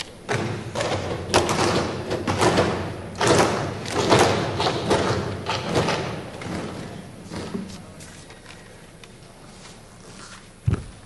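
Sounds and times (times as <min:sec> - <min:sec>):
people thumping wooden desks: 0:00.0 - 0:07.8.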